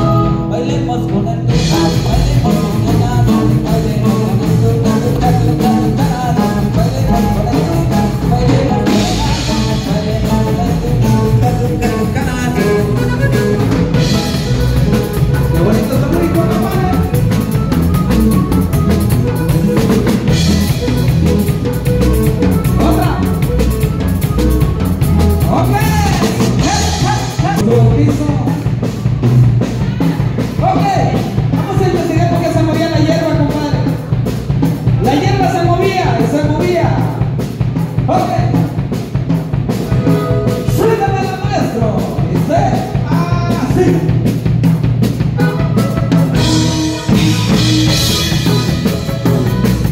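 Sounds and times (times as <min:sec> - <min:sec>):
person singing: 0:00.0 - 0:24.5
accordion: 0:00.0 - 0:36.6, 0:37.4 - 0:49.9
drums and bass: 0:00.0 - 0:49.9.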